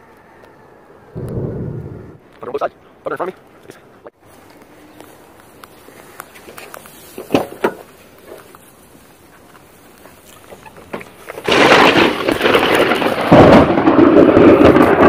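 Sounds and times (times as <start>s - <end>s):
thunder crack: 1.1s - 2.2s, 11.4s - 15.0s
heavy thunder rumble: 1.2s - 2.3s, 11.4s - 15.0s.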